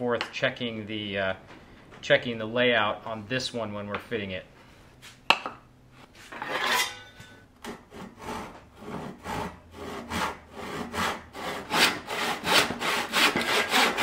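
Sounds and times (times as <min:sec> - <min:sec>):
handsaw cutting wood: 0:07.6 - 0:14.0.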